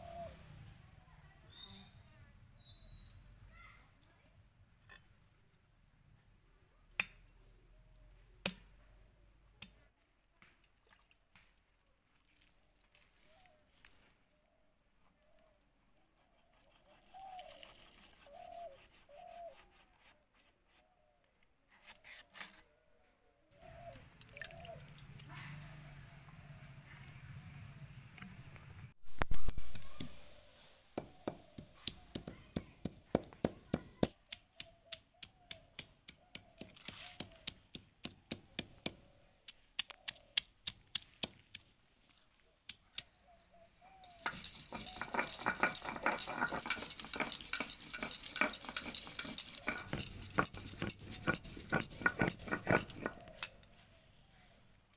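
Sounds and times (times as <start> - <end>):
doves cooing: 0.0 - 0.5, 23.6 - 26.6
stone roller grinding on stone: 44.1 - 53.5.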